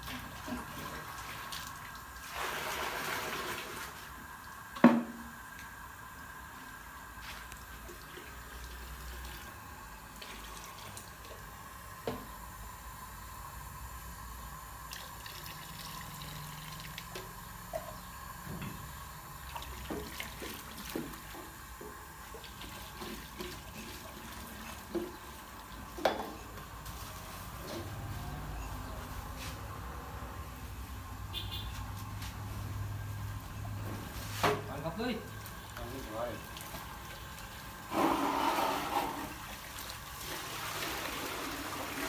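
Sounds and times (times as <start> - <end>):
liquid splashing in a pot: 18.8 - 26.9, 35.3 - 42.0.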